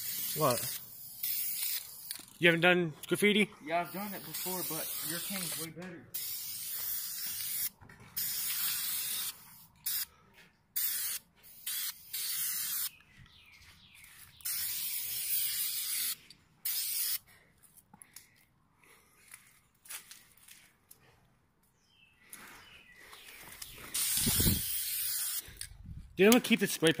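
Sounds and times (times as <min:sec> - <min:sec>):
spray can hissing: 0:00.0 - 0:02.3, 0:03.9 - 0:10.1, 0:10.8 - 0:12.9, 0:14.4 - 0:17.2, 0:23.9 - 0:25.5.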